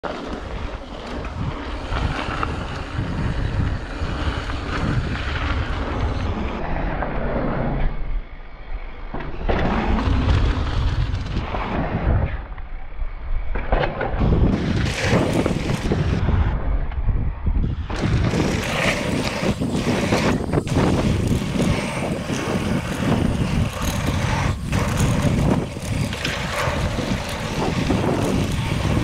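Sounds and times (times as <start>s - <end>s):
bike tyres on dirt trail: 0.0s - 29.0s
wind buffeting microphone: 0.4s - 8.0s, 14.0s - 29.0s
bike rattling and knocking: 17.8s - 29.0s.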